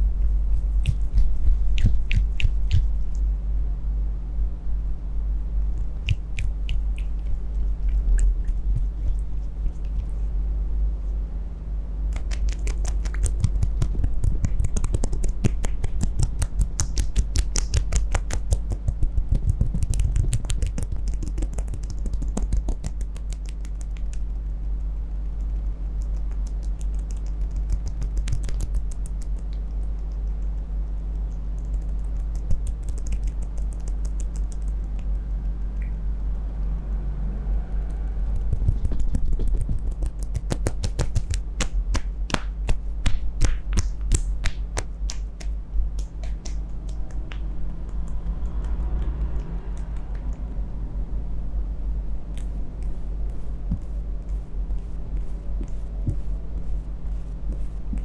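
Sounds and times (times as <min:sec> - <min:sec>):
steady low hum: 0:00.0 - 0:58.0
hands patting wet skin: 0:00.5 - 0:03.2, 0:12.1 - 0:24.6, 0:25.3 - 0:30.6, 0:31.2 - 0:35.2, 0:38.4 - 0:48.7, 0:52.4 - 0:58.0.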